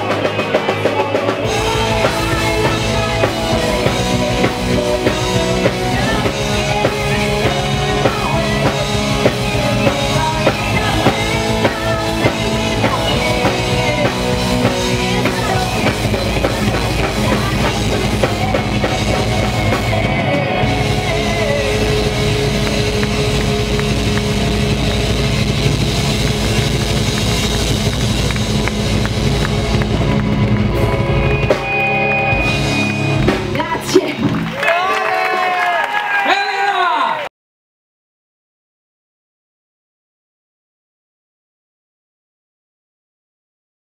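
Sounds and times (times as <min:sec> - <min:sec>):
distorted electric guitars: 0:00.0 - 0:35.3
keyboards: 0:00.0 - 0:35.3
drum kit: 0:00.0 - 0:35.6
bass: 0:00.0 - 0:37.3
woman singing: 0:00.5 - 0:22.4.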